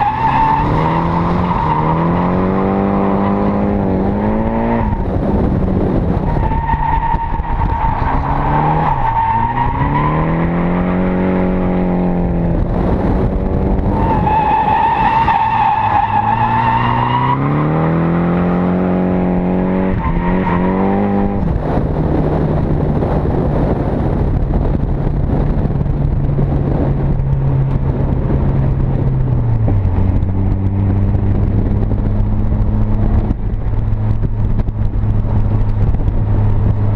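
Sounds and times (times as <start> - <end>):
car engine revving: 0.0 - 24.3.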